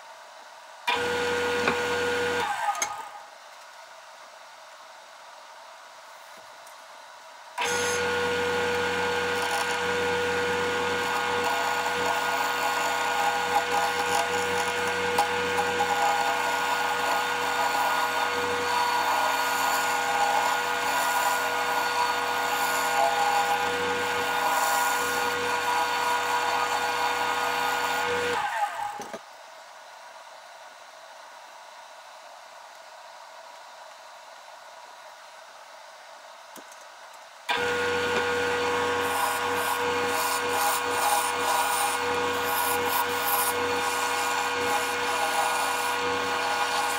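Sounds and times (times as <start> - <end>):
wood lathe motor hum: 0.9 - 2.8, 7.6 - 29.1, 37.5 - 46.9
gouge cutting spinning wood: 7.6 - 29.0, 37.5 - 46.9.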